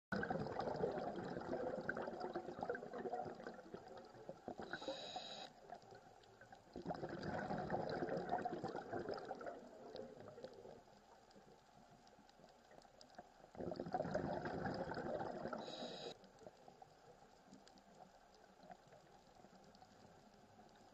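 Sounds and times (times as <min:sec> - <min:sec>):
bubbling underwater exhalations: 0:00.1 - 0:04.8, 0:06.8 - 0:10.5, 0:13.6 - 0:15.8
regulator hiss: 0:04.7 - 0:05.5, 0:15.6 - 0:16.2.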